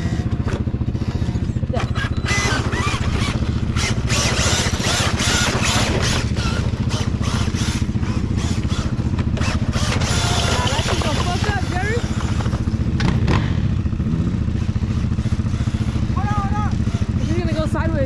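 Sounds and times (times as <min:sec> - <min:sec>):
toy truck tyres scrabbling on dirt: 0:00.0 - 0:13.1
motorcycle engine idling: 0:00.0 - 0:18.0.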